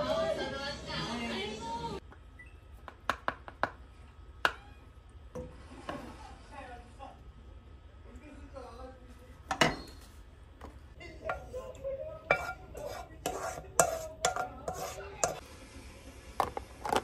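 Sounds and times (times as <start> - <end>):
wooden spatula scraping frying pan: 12.3 - 15.4.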